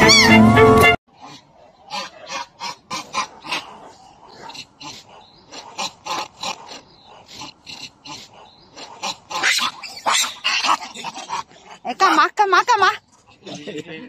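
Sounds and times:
macaque screaming: 0.0 - 0.4, 7.4 - 12.2.

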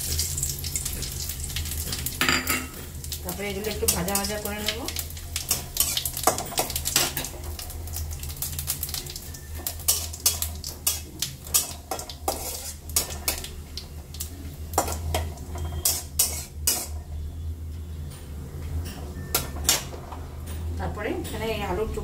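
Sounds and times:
spices sizzling in oil: 0.0 - 17.3
metal spatula scraping pan: 9.6 - 13.4, 14.8 - 17.0.

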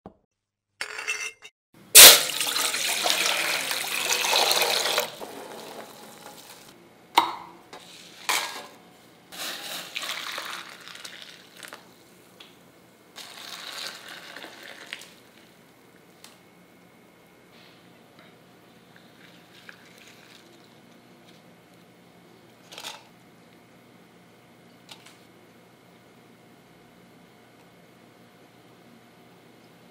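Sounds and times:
water pouring into steel bowl: 2.0 - 6.6, 9.8 - 11.8.

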